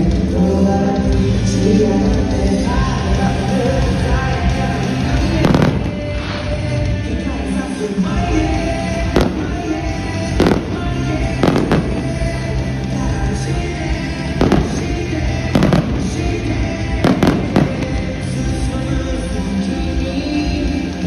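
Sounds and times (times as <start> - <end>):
music playing: 0.0 - 21.0
firework shells bursting: 10.4 - 12.3, 14.4 - 16.3, 17.0 - 18.2.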